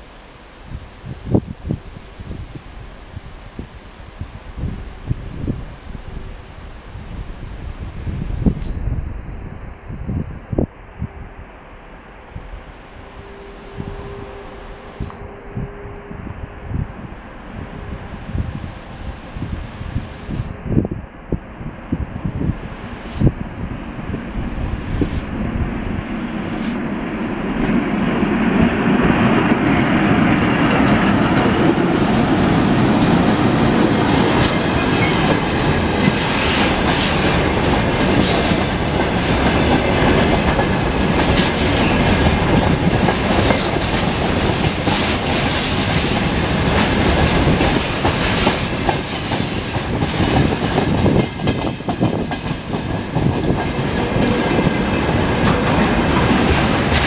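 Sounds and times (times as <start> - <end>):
electric locomotive passing: 0.0 - 57.0
train wheels clickety-clack: 27.5 - 57.0.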